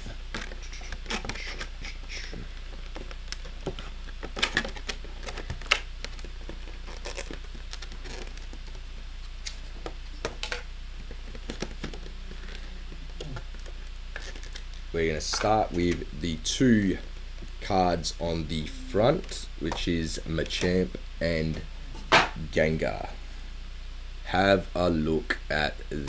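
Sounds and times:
plastic packaging crinkling: 2.9s - 14.8s.

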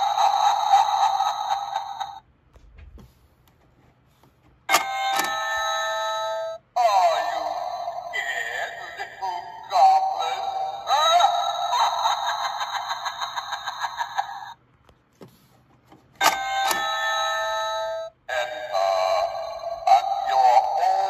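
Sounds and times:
electronic doorbell tune: 4.7s - 8.0s, 16.2s - 20.3s.

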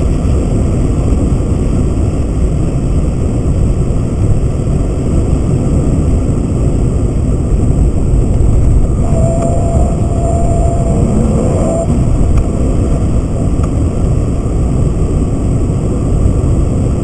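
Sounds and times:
car engine and tyre rumble: 0.0s - 17.0s
thin whine: 7.7s - 15.2s.

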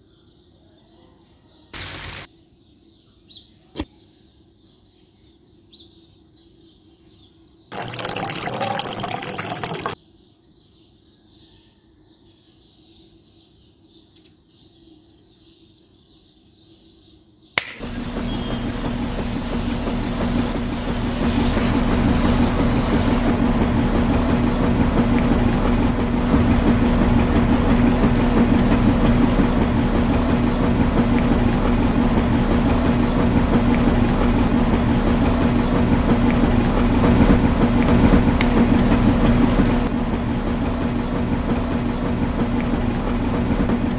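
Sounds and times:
small machine humming and rattling: 17.6s - 43.9s.

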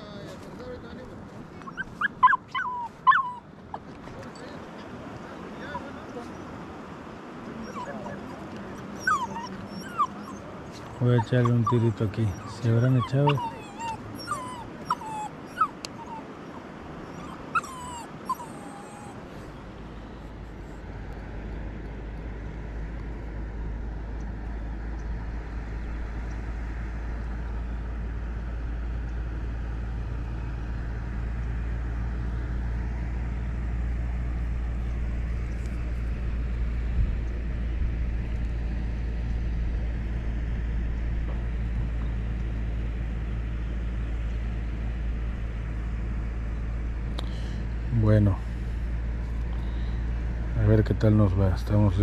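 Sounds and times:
dog yips: 1.6s - 3.5s, 7.6s - 8.2s, 8.9s - 19.2s
small dog whimpering: 1.6s - 3.8s, 5.6s - 6.4s, 7.6s - 19.4s
steady low rumble: 8.2s - 52.0s.

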